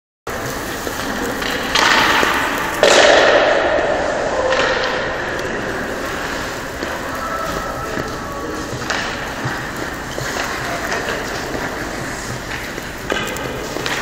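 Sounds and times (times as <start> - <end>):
ice skate blades scraping ice: 5.7 - 14.0.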